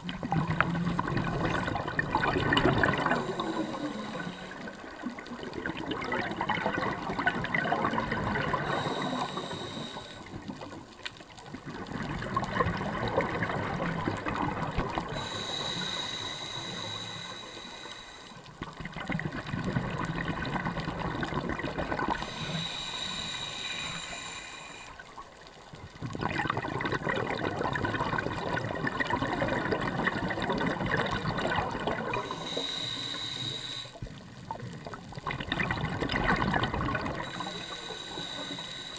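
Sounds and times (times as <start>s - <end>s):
bubbling exhalation: 0.1s - 9.1s, 26.1s - 32.6s, 34.7s - 38.9s
diver breathing through regulator: 2.6s - 5.0s, 8.5s - 10.5s, 14.9s - 18.5s, 22.1s - 25.1s, 31.2s - 34.1s, 37.0s - 38.9s.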